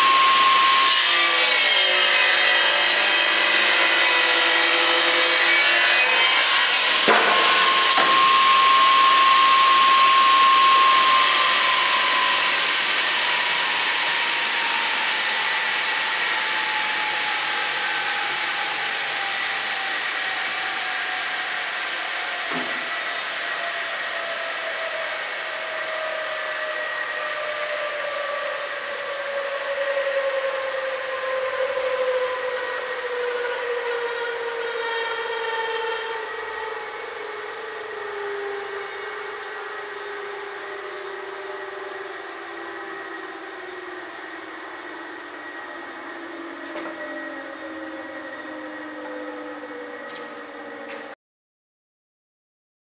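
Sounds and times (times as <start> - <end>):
saw blades whining down: 0.0 - 51.2.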